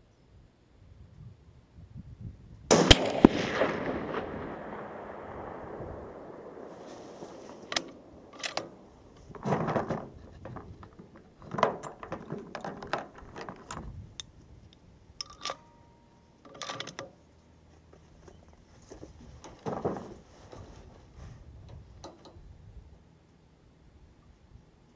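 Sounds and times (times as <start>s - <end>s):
rifle bolt clicks and clacks: 7.5s - 15.7s, 16.4s - 17.2s.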